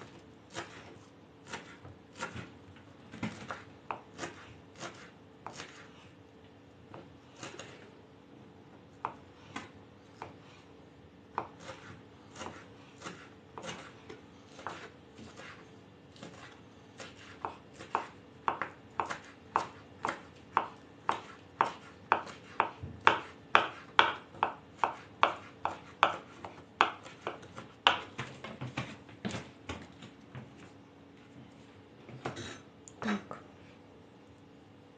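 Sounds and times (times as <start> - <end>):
knives chopping on wooden boards: 11.4 - 13.9, 14.5 - 15.6, 16.2 - 29.8.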